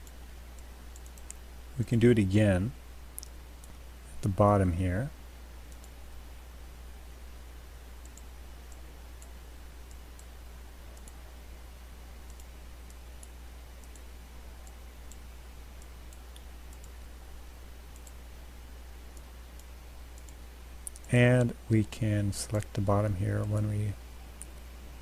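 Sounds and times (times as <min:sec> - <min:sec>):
computer mouse clicks: 0:00.0 - 0:01.4, 0:03.2 - 0:03.8, 0:05.7 - 0:06.0, 0:08.0 - 0:10.3, 0:10.9 - 0:11.2, 0:12.2 - 0:17.0, 0:17.9 - 0:18.2, 0:19.1 - 0:21.5
low electrical hum: 0:00.0 - 0:25.0
microphone hiss: 0:00.0 - 0:25.0.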